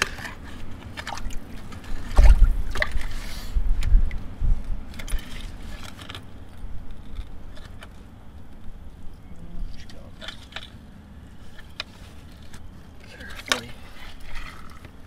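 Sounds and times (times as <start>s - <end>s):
muddy water sloshing: 0.0s - 4.3s, 4.9s - 6.8s, 9.6s - 15.0s.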